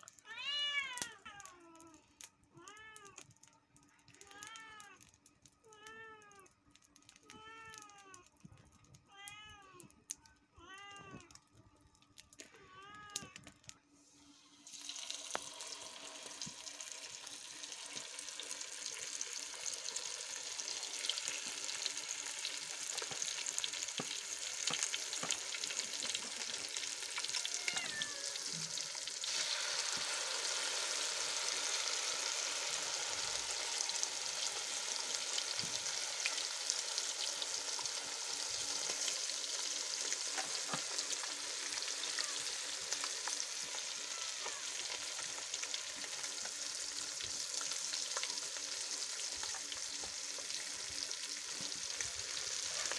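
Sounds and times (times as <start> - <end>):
cat meowing: 0.2 - 1.9, 27.2 - 28.8, 41.7 - 42.7, 43.9 - 45.0
fish sizzling in hot oil: 14.2 - 52.9.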